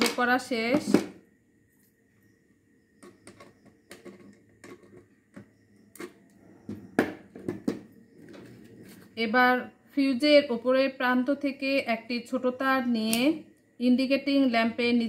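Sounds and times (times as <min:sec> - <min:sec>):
plastic and tool knocking on wooden table: 0:06.7 - 0:08.5.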